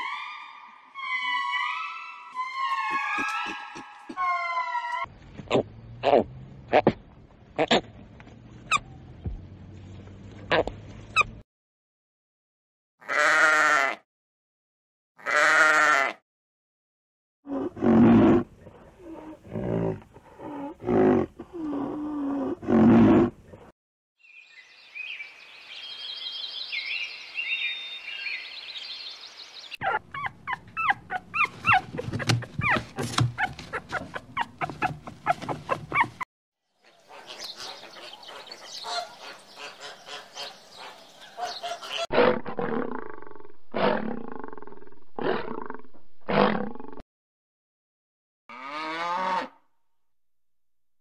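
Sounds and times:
lioness roaring: 42.1 - 47.0.

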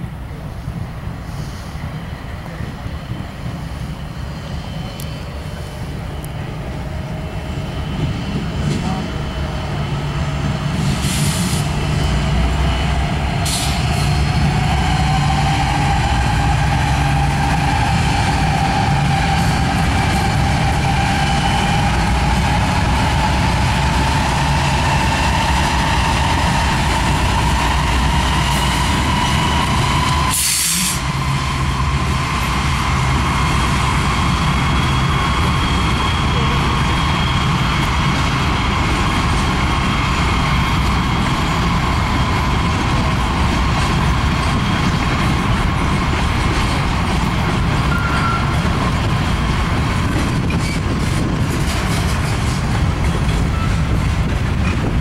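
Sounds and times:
diesel locomotive engine rumble: 0.0 - 55.0
air hissing: 1.2 - 1.9, 10.8 - 11.8, 13.4 - 14.1, 30.1 - 31.1.

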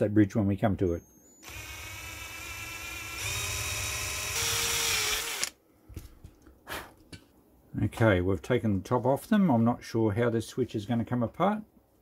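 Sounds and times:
power drill whine: 1.2 - 5.5.

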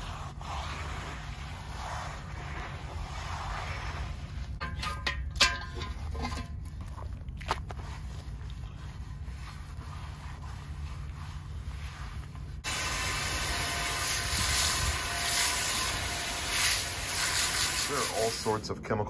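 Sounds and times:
hose spraying water on wok: 12.6 - 18.6.

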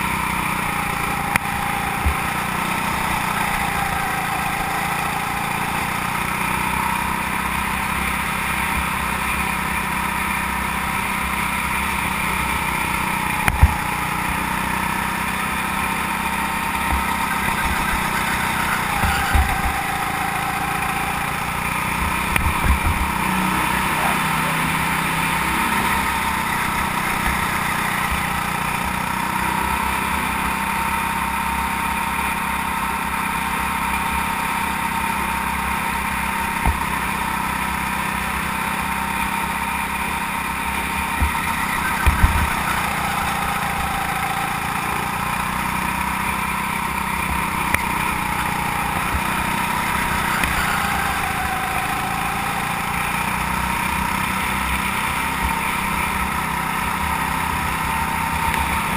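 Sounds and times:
go-kart engine running: 0.0 - 58.9.

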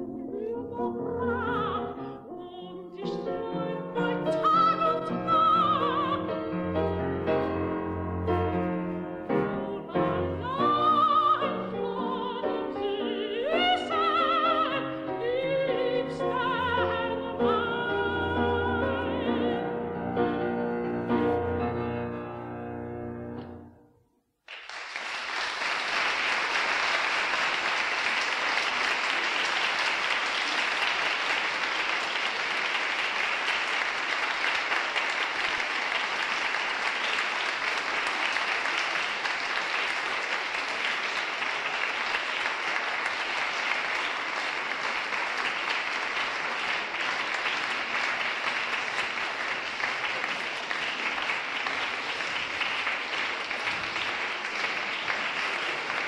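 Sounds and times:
audience applauding: 24.4 - 56.0.

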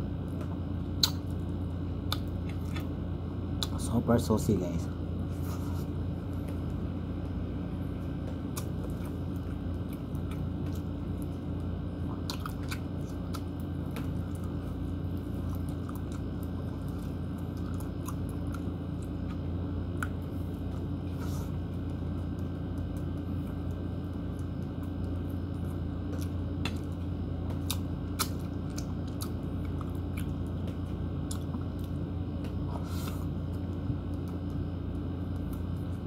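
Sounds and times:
person chewing meat: 0.0 - 3.9, 5.1 - 36.0
steady low hum: 0.0 - 36.0
wet mouth clicks and smacks: 1.0 - 1.3.

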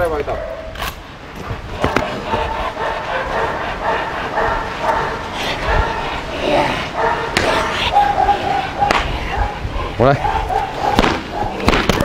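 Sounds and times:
dog barking: 1.8 - 6.3, 6.9 - 11.7.

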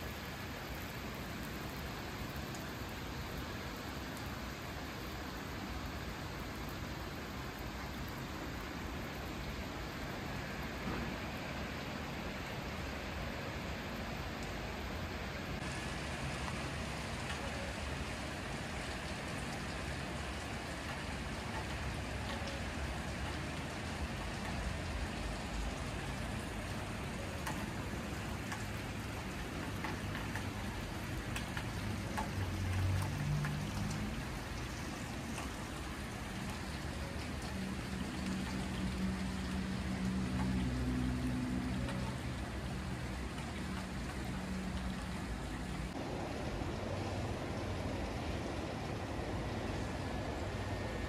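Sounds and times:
light rain hissing: 0.0 - 51.0
water drips: 0.1 - 48.5
low engine-like hum: 8.1 - 51.0.

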